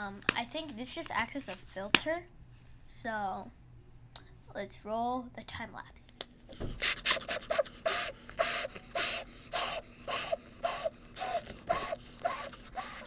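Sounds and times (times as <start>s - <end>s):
person blowing into pillow valve: 6.5s - 13.0s.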